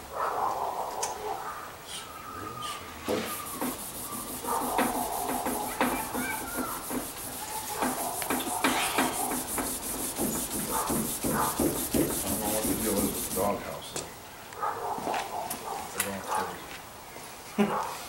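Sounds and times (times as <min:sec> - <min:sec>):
steady high hiss: 0:01.8 - 0:14.3.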